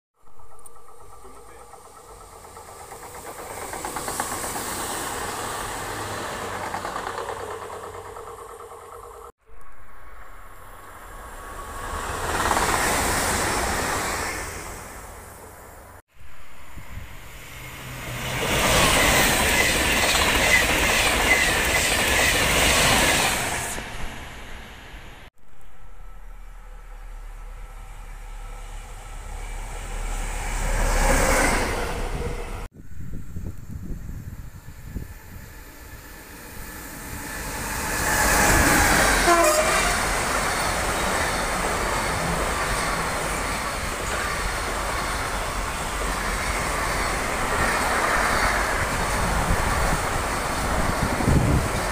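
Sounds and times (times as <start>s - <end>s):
wheels clacking over rails: 0.2s - 9.3s, 18.1s - 23.9s
high-speed train passing: 0.2s - 51.9s
train horn: 38.9s - 40.2s.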